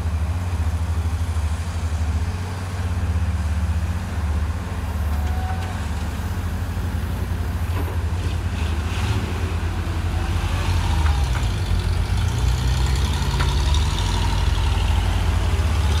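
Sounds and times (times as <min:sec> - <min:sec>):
excavator diesel engines running: 0:00.0 - 0:16.0.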